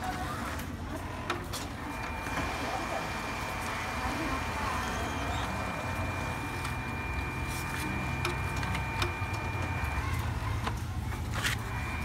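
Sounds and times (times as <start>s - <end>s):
printer whine and hum: 0.0s - 12.0s
printer mechanical clicks: 8.0s - 10.8s.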